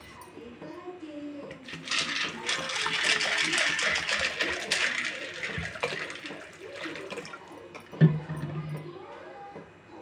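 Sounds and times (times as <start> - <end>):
water pouring into a metal bowl: 1.7 - 8.5.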